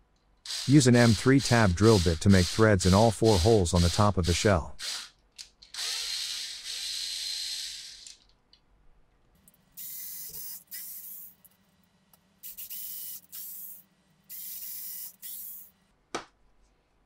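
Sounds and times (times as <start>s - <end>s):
electric screwdriver whirring: 12.5s - 15.7s.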